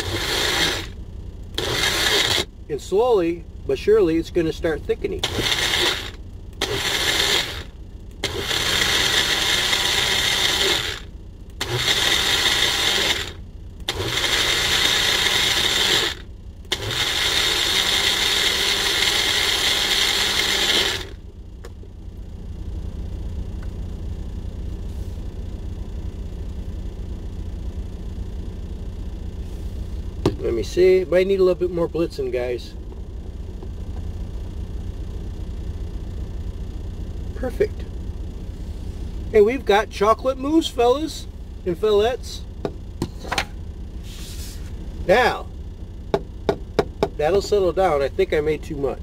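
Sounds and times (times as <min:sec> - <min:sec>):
blender whirring: 0:00.0 - 0:01.0, 0:01.6 - 0:02.5, 0:05.2 - 0:21.2
low steady rumble: 0:00.0 - 0:49.0.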